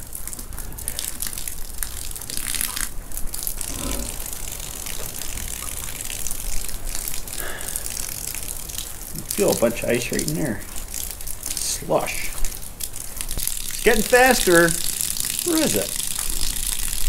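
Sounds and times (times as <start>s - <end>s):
water sputtering from hose: 0.0s - 17.0s.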